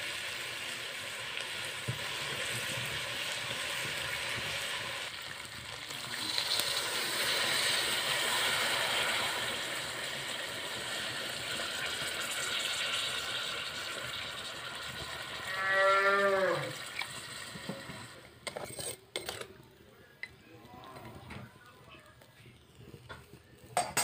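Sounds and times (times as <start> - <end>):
chicken sizzling in a wok: 0.0 - 19.8
cow mooing: 15.5 - 16.8.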